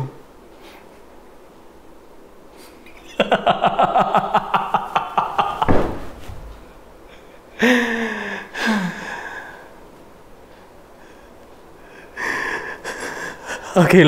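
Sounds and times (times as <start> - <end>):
man laughing manically: 3.0 - 6.1, 7.0 - 9.4, 12.1 - 14.0.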